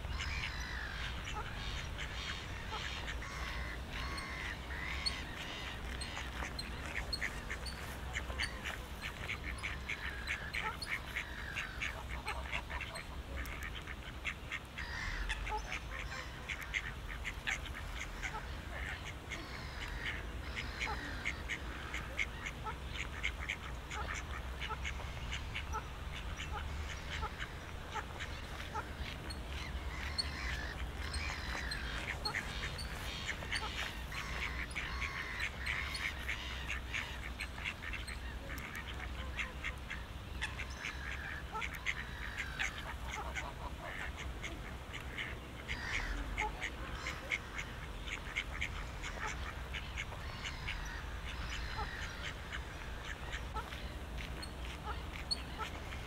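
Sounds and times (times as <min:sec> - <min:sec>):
ducks quacking: 0:00.0 - 0:56.0.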